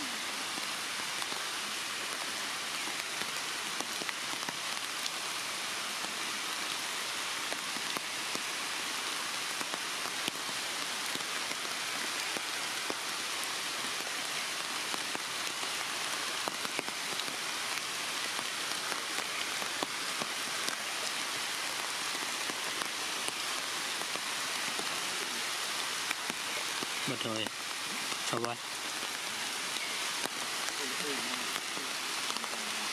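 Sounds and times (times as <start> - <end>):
steady rain hiss: 0.0 - 32.9.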